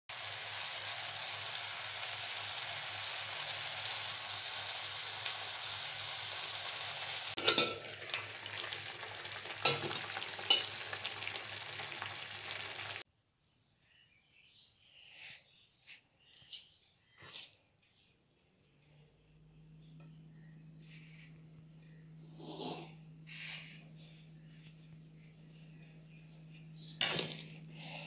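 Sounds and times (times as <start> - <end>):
leaves sizzling in a pan: 0.1 - 13.0.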